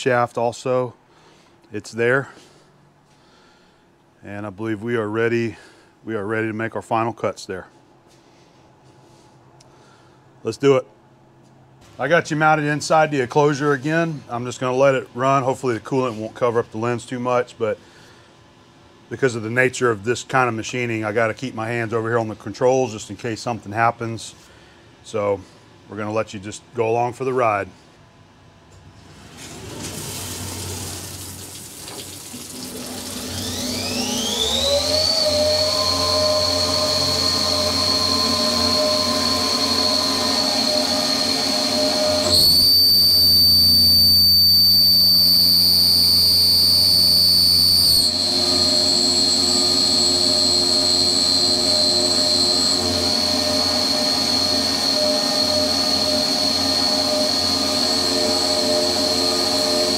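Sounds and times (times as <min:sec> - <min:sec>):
mill spindle whining: 0:29.4 - 0:59.9
coolant hissing: 0:29.5 - 0:33.8.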